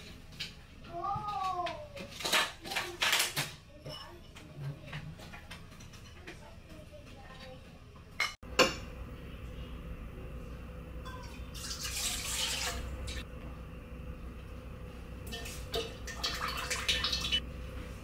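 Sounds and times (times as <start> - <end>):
liquid poured into bowl: 11.2 - 13.0.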